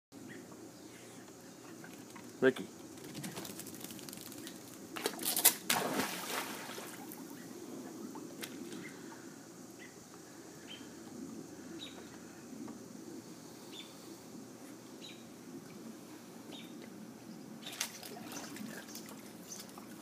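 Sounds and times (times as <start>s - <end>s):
water sloshing: 4.9s - 7.3s
dog splashing into pool: 5.0s - 7.2s.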